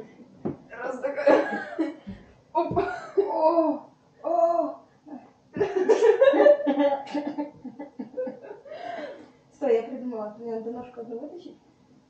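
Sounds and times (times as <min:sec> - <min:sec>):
girls laughing: 0:01.2 - 0:02.0, 0:02.6 - 0:03.8, 0:05.6 - 0:09.2.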